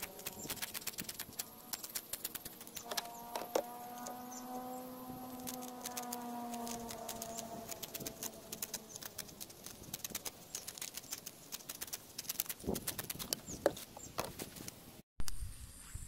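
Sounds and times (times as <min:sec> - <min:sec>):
scissors snipping rubber: 0:00.0 - 0:04.2, 0:05.3 - 0:13.4
faint hum: 0:00.0 - 0:12.1.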